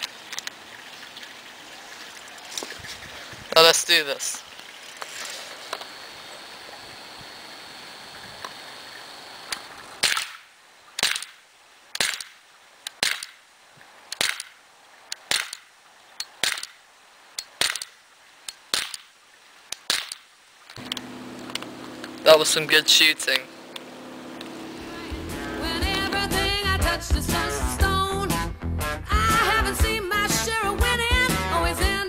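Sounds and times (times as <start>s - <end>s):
air pistol shots: 10.0s - 11.4s, 12.0s - 12.4s, 13.0s - 13.4s, 14.2s - 14.6s, 15.3s - 15.6s, 16.4s - 16.8s, 17.6s - 18.0s, 18.7s - 19.1s.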